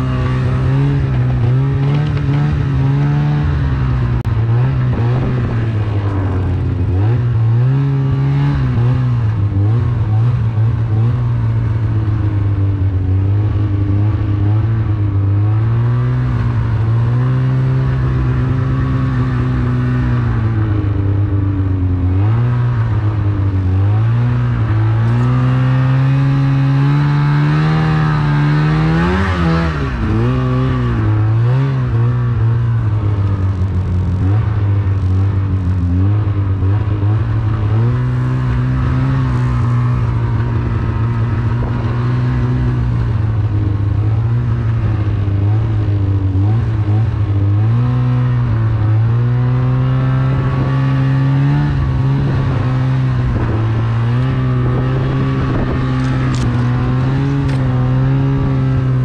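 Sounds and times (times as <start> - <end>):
snowmobile engine running: 0.0 - 59.0.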